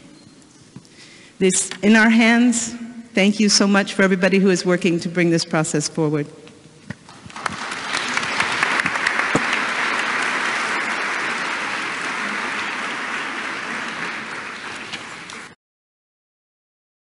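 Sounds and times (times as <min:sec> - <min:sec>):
audience applauding: 0:07.1 - 0:15.6.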